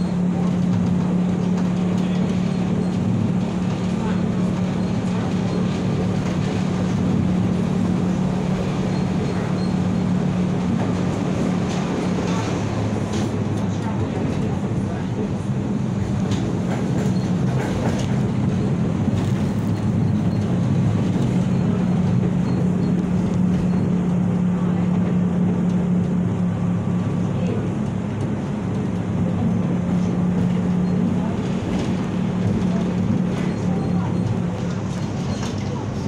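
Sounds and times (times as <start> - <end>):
tram wheels rumbling on rails: 0.0 - 36.0.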